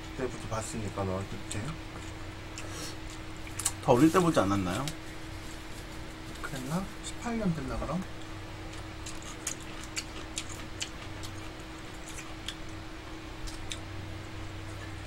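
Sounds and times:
low electrical hum: 0:00.0 - 0:15.0
chewing and utensil clicks: 0:08.2 - 0:12.8, 0:13.4 - 0:13.9.

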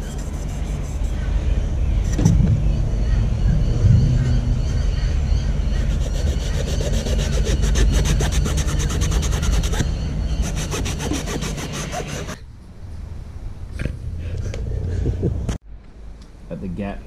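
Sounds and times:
low rumble: 0:00.0 - 0:06.6
abrasive pad scrubbing fin blade: 0:05.9 - 0:12.4.

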